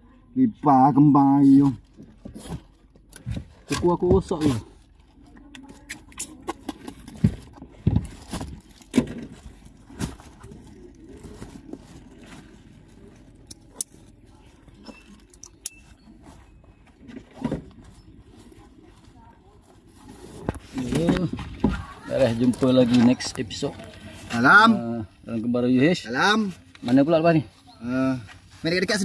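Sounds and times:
bags thumping and rustling: 0:06.8 - 0:13.4.

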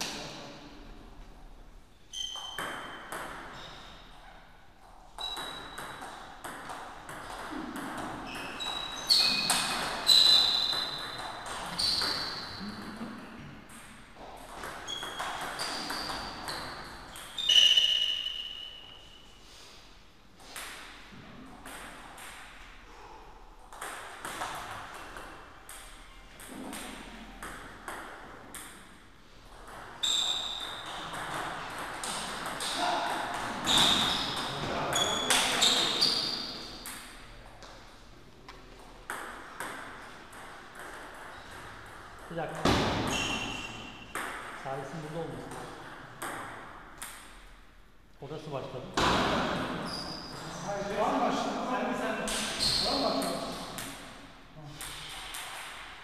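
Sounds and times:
ping pong ball on rackets: 0:02.2 - 0:03.6
ping pong ball on table: 0:02.2 - 0:03.6, 0:05.2 - 0:18.9, 0:23.7 - 0:37.2.

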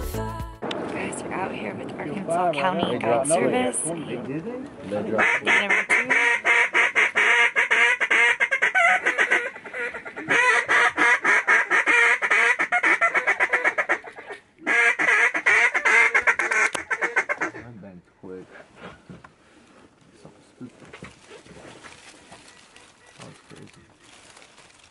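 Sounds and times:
ducks quacking: 0:05.0 - 0:17.8, 0:22.3 - 0:24.2
geese honking: 0:05.1 - 0:17.7, 0:22.3 - 0:24.2.

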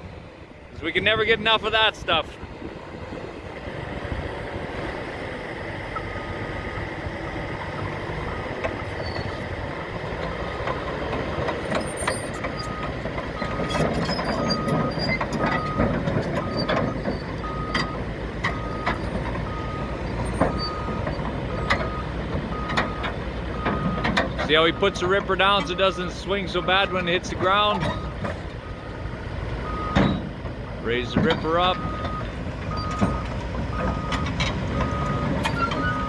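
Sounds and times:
bulldozer diesel engine running: 0:00.0 - 0:36.0
reversing alarm beeping: 0:05.9 - 0:09.5, 0:11.8 - 0:36.0
steel tracks clanking on metal: 0:07.6 - 0:28.6, 0:29.8 - 0:36.0.

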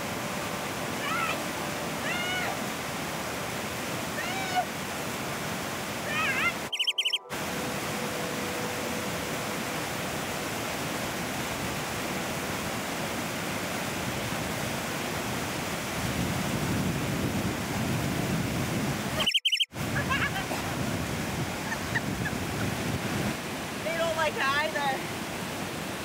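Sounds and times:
stream rushing over boulders: 0:00.0 - 0:26.0
high wavering whine: 0:06.6 - 0:12.6.

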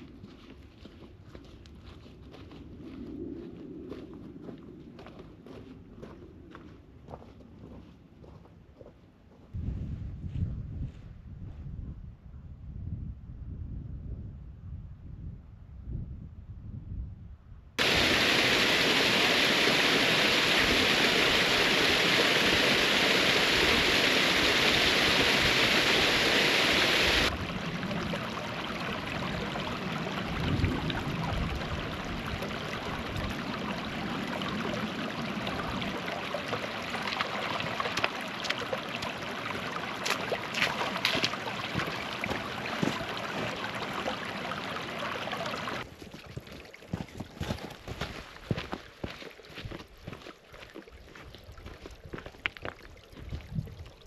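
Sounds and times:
stream running over rocks: 0:17.8 - 0:54.0.

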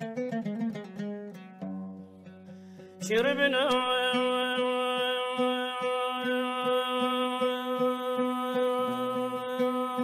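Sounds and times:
oud plucking: 0:00.0 - 0:06.8.

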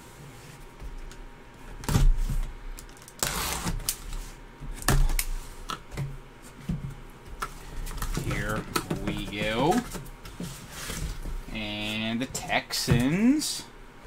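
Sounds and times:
cardboard rustling: 0:07.6 - 0:12.1.

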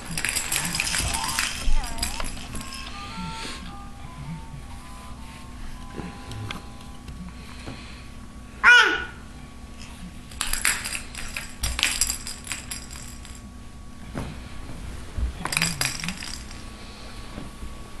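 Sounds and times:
plastic toys rattling: 0:00.0 - 0:03.1, 0:09.8 - 0:13.4, 0:15.4 - 0:16.7
baby squealing: 0:08.6 - 0:09.2.

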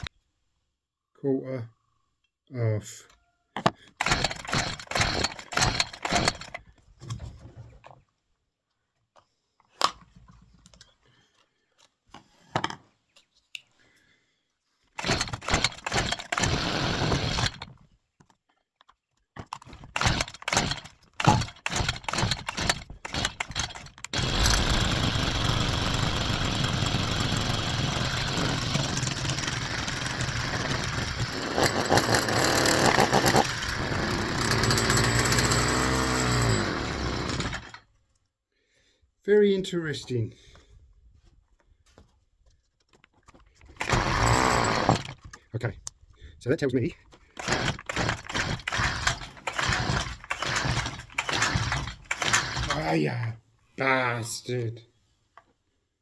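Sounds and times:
strimmer pull-start attempts: 0:04.0 - 0:06.6, 0:15.0 - 0:17.8, 0:19.5 - 0:37.9, 0:43.7 - 0:45.4, 0:47.3 - 0:52.9
strimmer engine running: 0:15.0 - 0:17.6, 0:20.0 - 0:37.7, 0:43.8 - 0:45.1, 0:47.4 - 0:52.8.

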